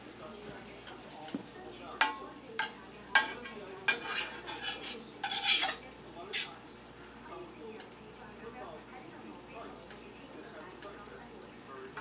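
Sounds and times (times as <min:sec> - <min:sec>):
metal utensil scraping frying pan: 0:02.0 - 0:06.7.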